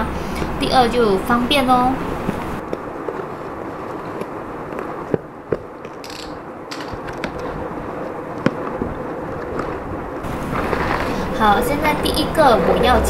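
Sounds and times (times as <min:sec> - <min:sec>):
sharp clicks: 0:05.8 - 0:07.5.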